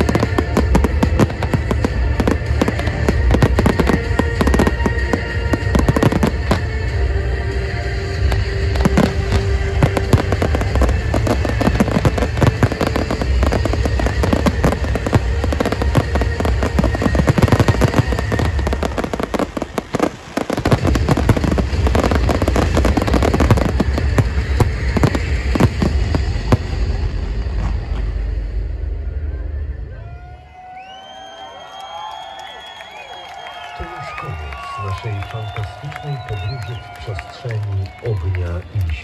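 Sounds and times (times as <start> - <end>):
fireworks bursting and crackling: 0.0 - 29.0, 32.0 - 39.0
show music: 0.0 - 30.8.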